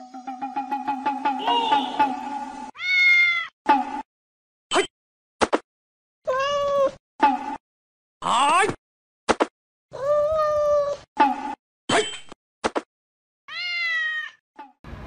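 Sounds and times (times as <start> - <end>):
cat meowing: 2.8 - 3.5, 6.3 - 6.9, 13.5 - 14.4.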